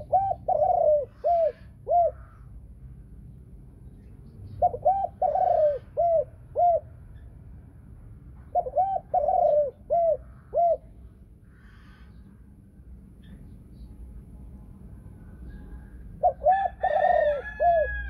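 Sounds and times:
dove cooing: 0.0s - 2.5s, 4.6s - 7.0s, 8.5s - 11.0s, 15.6s - 18.0s.

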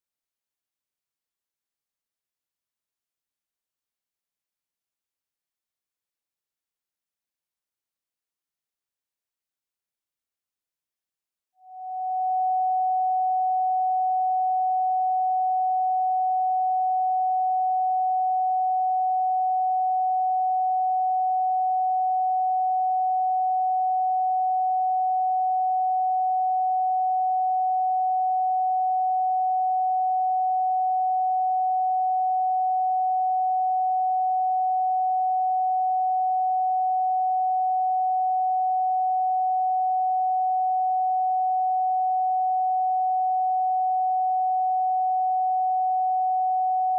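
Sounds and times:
sine wave tone: 11.6s - 46.9s.

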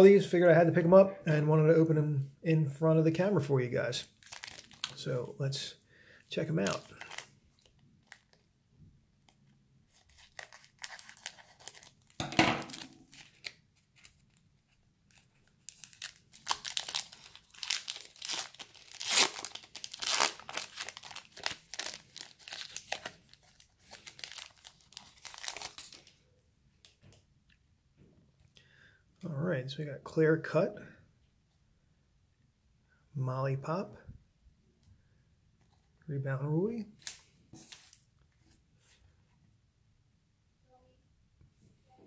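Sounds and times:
foil crackle: 4.2s - 5.0s, 10.0s - 14.1s, 15.6s - 26.1s
foil crinkling and tearing: 4.2s - 5.0s, 6.6s - 8.4s, 9.9s - 14.4s, 15.1s - 26.2s
scissors cutting foil wrapper: 15.7s - 25.9s.

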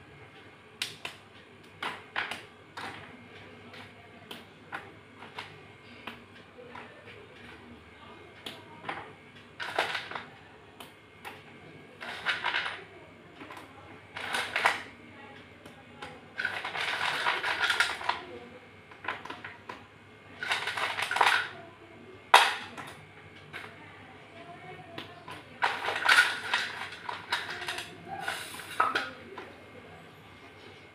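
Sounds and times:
pieces clicking: 25.0s - 29.5s.

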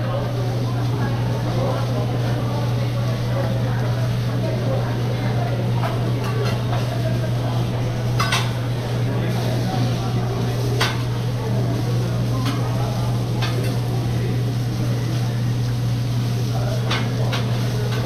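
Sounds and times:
metal spatulas clacking on griddle: 16.8s - 18.0s.

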